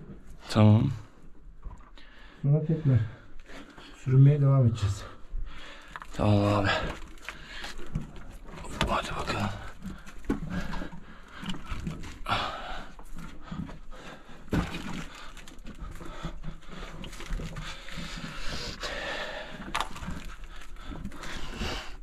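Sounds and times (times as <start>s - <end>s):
crawling over loose stones: 5.8s - 22.0s
knocks and scrapes against rock: 6.0s - 18.9s, 19.6s - 22.0s
person breathing heavily: 9.7s - 22.0s.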